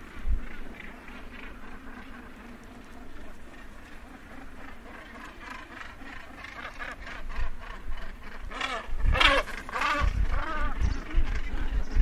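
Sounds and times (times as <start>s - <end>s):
gannets calling harshly: 3.2s - 11.6s.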